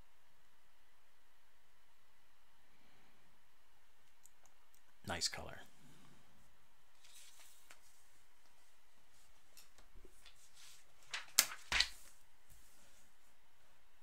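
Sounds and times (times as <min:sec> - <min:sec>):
paper shuffling: 0:07.0 - 0:13.2.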